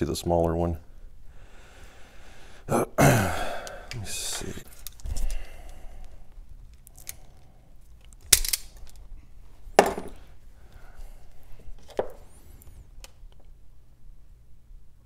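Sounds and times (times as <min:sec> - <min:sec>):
tools knocking on wooden bench: 0:09.8 - 0:10.2.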